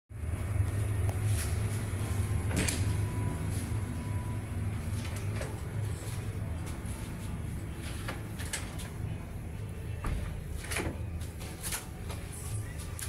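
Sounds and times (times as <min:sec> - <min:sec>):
low hum of ship machinery: 0:00.1 - 0:13.0
cabin door unlatching and opening: 0:10.0 - 0:11.9.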